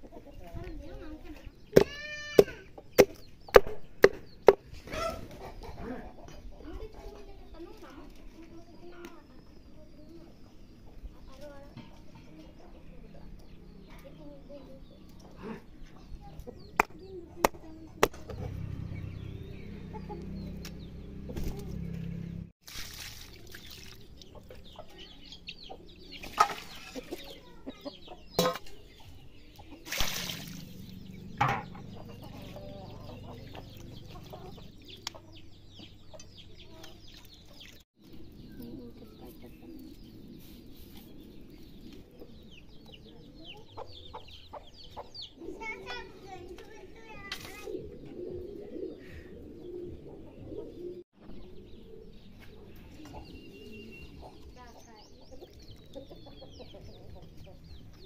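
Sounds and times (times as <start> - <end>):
chickens clucking: 0.0 - 22.5, 24.0 - 58.0
sharp knocks: 31.4 - 31.8.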